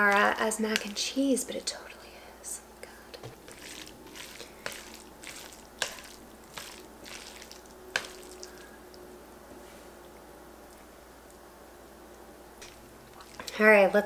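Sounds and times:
squishy noodles stirred in pan: 0.0s - 1.4s, 3.2s - 8.8s, 12.6s - 14.0s.

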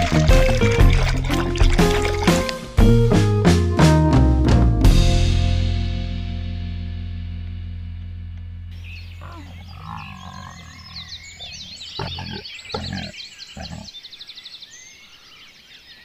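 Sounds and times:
birds chirping: 8.7s - 16.0s
tiger growling: 9.1s - 14.0s.

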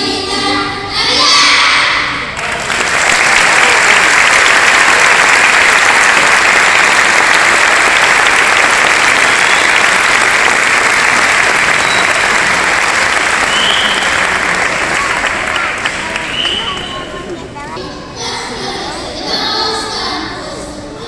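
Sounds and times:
crowd applauding: 2.3s - 17.6s.

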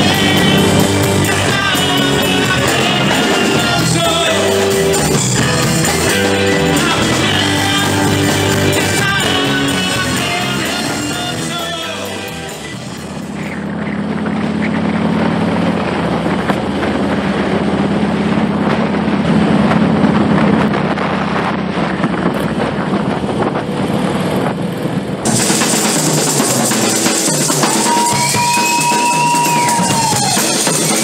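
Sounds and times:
motorcycle engines running: 0.0s - 31.0s
wind rushing over microphone: 12.6s - 25.5s.

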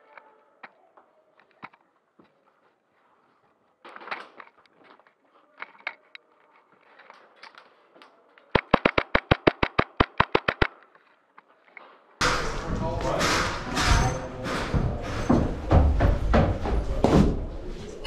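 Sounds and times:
scuffs and rustling: 1.2s - 8.4s
airsoft rifle rapid shots: 8.6s - 10.8s.

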